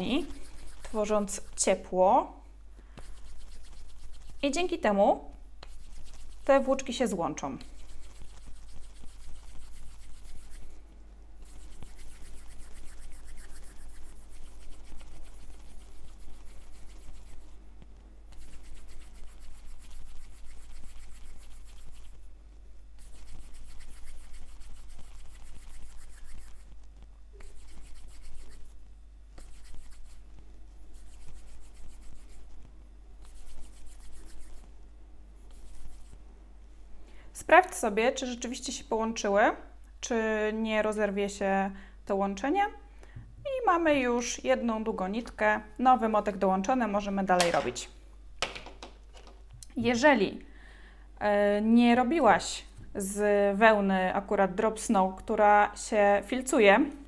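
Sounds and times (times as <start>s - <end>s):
palms rubbing wool yarn: 0.0s - 2.1s, 2.9s - 22.3s, 23.0s - 36.2s.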